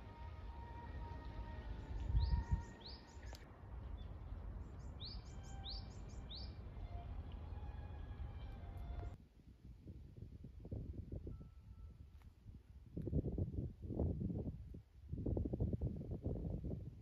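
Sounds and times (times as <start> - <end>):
bird calling in rising chirps: 4.7 - 6.6.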